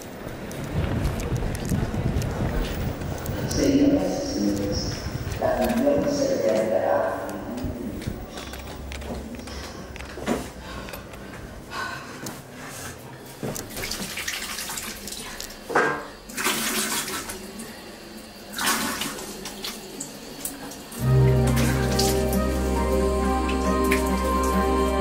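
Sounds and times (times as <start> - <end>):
water splashing from sink tap: 13.7 - 17.8, 18.5 - 22.2
music: 21.0 - 25.0.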